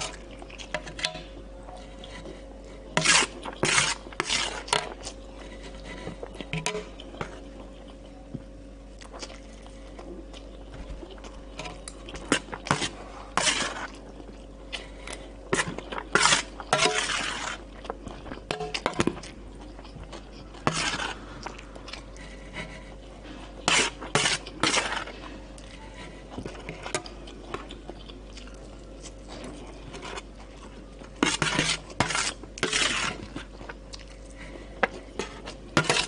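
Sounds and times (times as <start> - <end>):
eating sounds: 0.0 - 36.0
spoon scraping metal plate: 3.0 - 4.8, 15.6 - 17.6, 31.2 - 33.2, 35.2 - 36.0.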